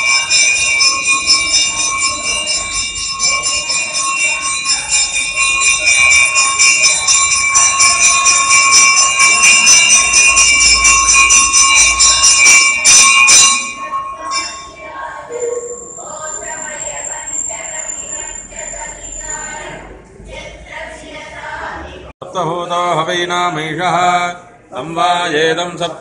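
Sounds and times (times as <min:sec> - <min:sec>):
bell rung rapidly: 0:00.0 - 0:19.8.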